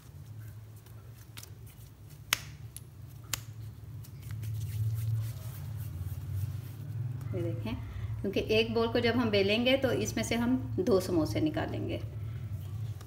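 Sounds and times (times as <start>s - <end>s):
low steady hum: 0.0s - 13.0s
fingers snapping on sticky dough: 1.2s - 4.4s.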